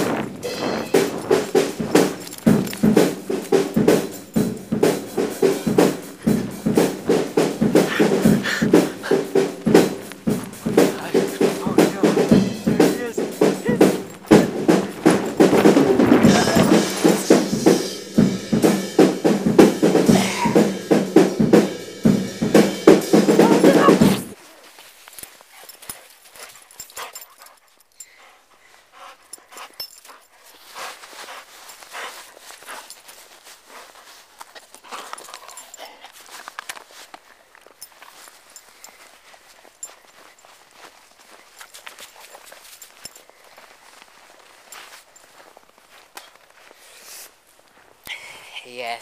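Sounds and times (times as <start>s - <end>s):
drum kit steady beat: 0.0s - 24.4s.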